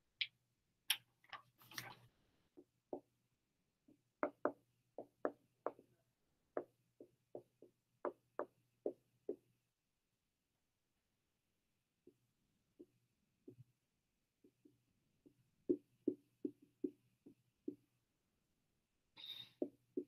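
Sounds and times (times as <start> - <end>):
marker writing on whiteboard: 3.9 - 9.5, 12.0 - 13.7, 14.4 - 18.0, 19.2 - 20.0.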